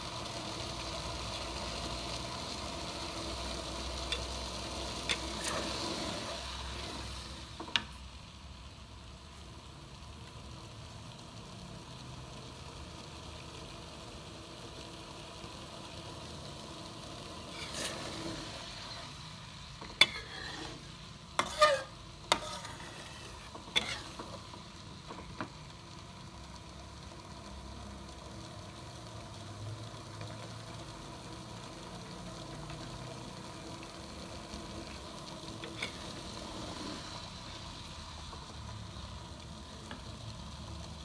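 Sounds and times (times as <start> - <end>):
simmering pan hiss: 0.0 - 41.0
spatula stirring curry in wok: 0.5 - 8.0, 17.1 - 25.6, 34.9 - 40.6.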